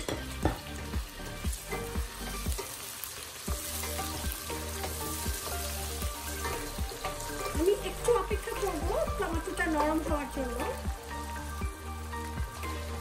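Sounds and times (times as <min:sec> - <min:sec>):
vegetables sizzling in hot oil: 0:00.0 - 0:13.0.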